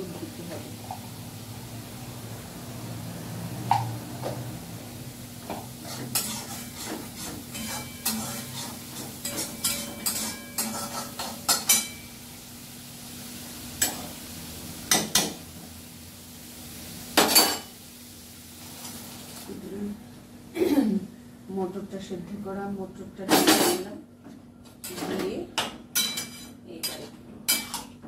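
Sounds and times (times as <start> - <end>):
metal spoon scraping and clinking pan: 5.8 - 12.1, 26.0 - 27.9.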